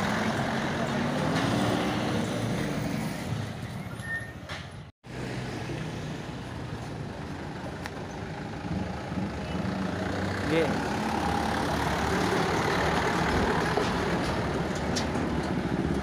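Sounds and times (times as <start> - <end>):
diesel truck engines running: 0.0 - 16.0.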